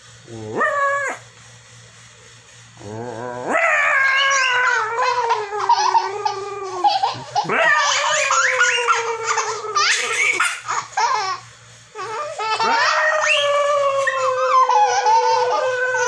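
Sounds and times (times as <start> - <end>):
toddler laughing: 4.2 - 11.4, 12.0 - 16.0.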